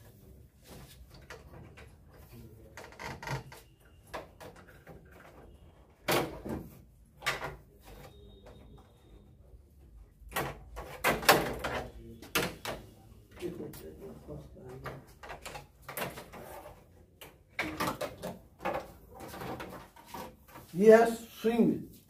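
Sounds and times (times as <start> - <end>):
hard plastic knocks and clatter: 10.3 - 12.8, 14.6 - 20.6.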